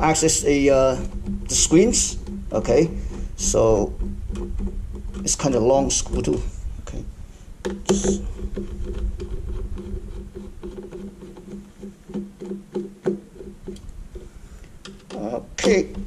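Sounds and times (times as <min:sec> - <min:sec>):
pulsing low hum: 0:00.0 - 0:11.8.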